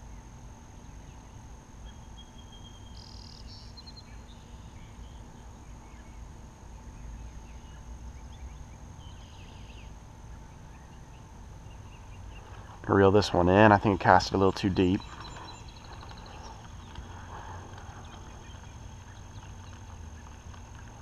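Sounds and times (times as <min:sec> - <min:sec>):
thin high whine: 0:00.0 - 0:21.0
steady low rumble: 0:04.8 - 0:21.0.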